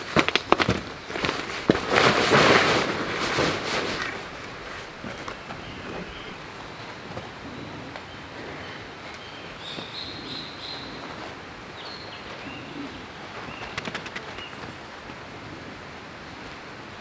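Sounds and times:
steady background hiss: 0.0s - 17.0s
high bird calls: 5.0s - 14.9s.

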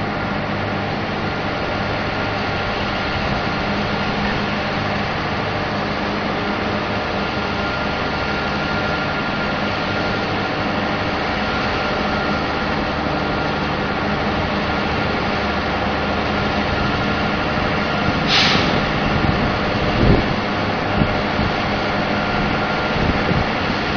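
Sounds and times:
heavy diesel engine droning: 0.0s - 23.9s
burst of hiss: 18.2s - 18.9s.

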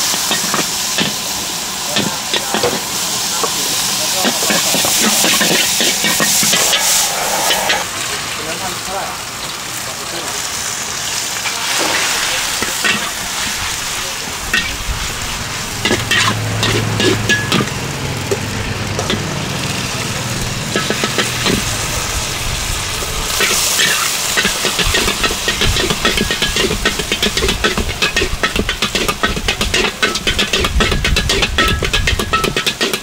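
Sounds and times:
ladle scraping wok: 0.0s - 7.9s, 11.4s - 33.0s
food sizzling in a wok: 0.0s - 33.0s
metal clinking on wok: 12.6s - 13.5s, 14.5s - 14.8s, 15.8s - 19.3s, 20.6s - 21.8s, 23.3s - 33.0s.

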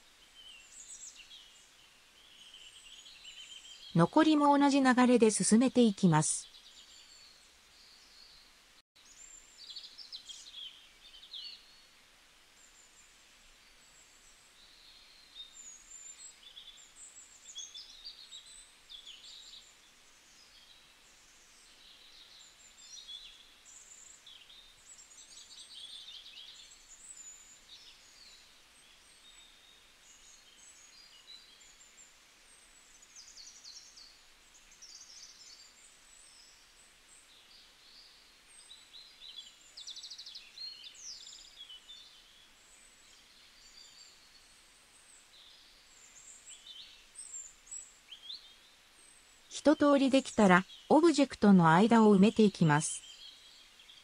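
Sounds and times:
small birds chirping: 0.0s - 11.9s, 13.7s - 54.0s
light hiss: 6.4s - 49.6s.

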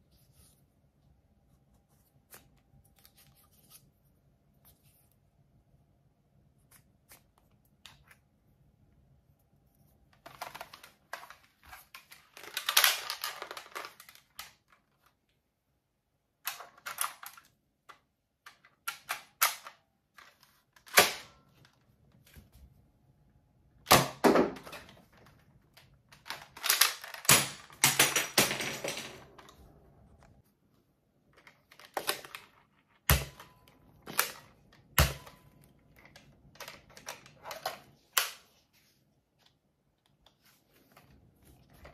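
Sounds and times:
toy blasters clicking and rattling: 12.0s - 14.6s, 26.2s - 28.5s.

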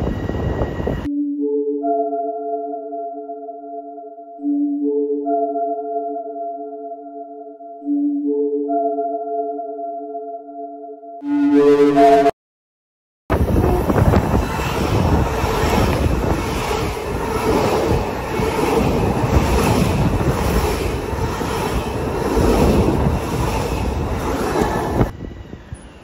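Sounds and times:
train passing close by: 0.0s - 1.1s, 13.3s - 26.0s.

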